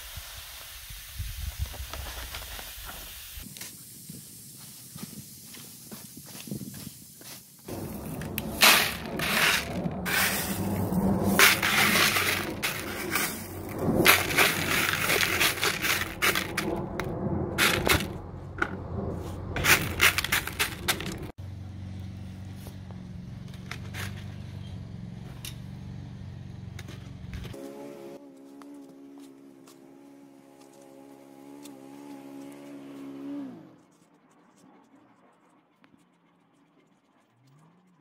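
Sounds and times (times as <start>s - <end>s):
clay pebbles rattling into plastic pot: 7.8s - 10.6s, 11.3s - 18.2s, 19.6s - 21.3s.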